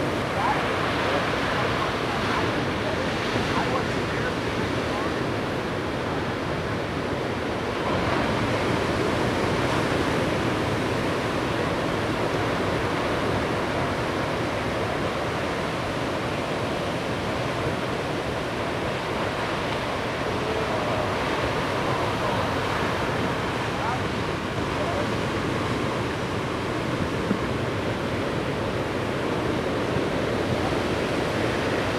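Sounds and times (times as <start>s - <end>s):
ocean waves breaking: 0.0s - 31.9s.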